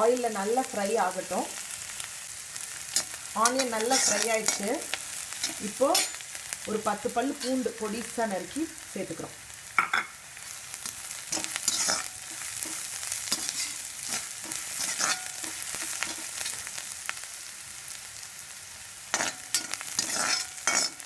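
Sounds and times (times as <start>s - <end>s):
onion sizzling in hot oil: 0.0s - 21.0s
metal spatula scraping pan: 2.9s - 6.3s, 11.3s - 16.7s, 19.1s - 21.0s.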